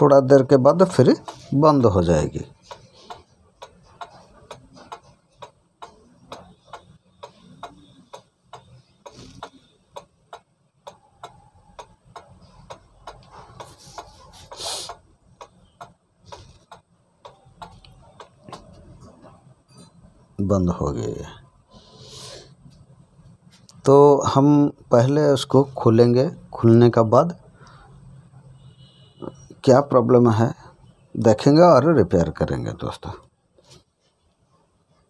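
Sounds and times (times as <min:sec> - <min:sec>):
pendulum clock ticking: 0:00.8 - 0:18.8.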